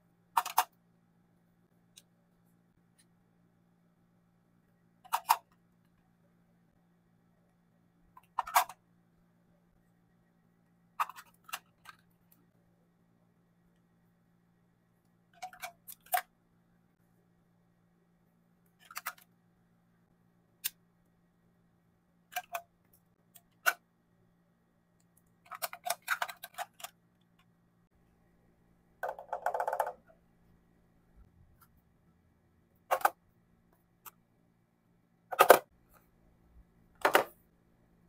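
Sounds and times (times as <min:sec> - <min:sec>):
faint steady hum: 0:00.0 - 0:38.0
plastic tubes clicking: 0:29.0 - 0:30.1.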